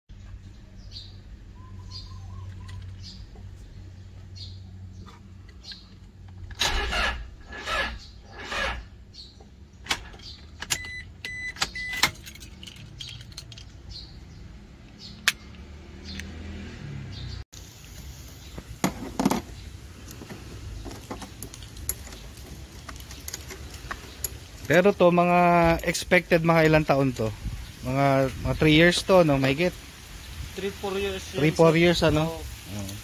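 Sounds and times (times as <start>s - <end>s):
car starter cranking: 6.4s - 8.9s
short beeps: 10.8s - 12.0s.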